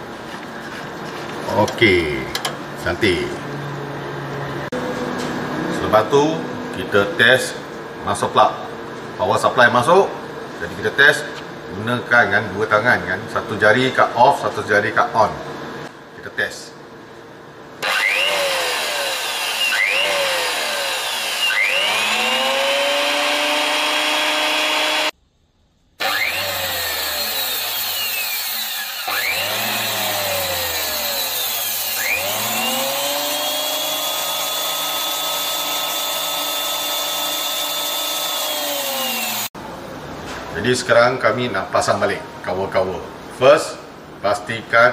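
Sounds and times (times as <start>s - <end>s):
planer motor whining: 17.8s - 25.1s, 26.0s - 39.5s.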